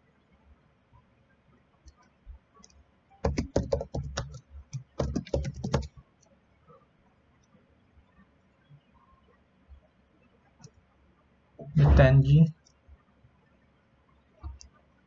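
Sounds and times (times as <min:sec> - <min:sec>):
computer keyboard keys clicking: 0:02.6 - 0:05.9.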